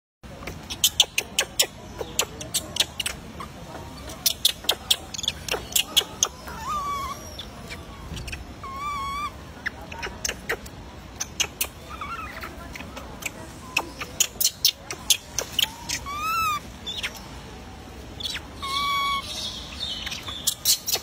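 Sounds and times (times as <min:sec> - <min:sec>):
wavering animal calls: 0:02.4 - 0:10.6, 0:15.2 - 0:16.7, 0:18.2 - 0:21.0.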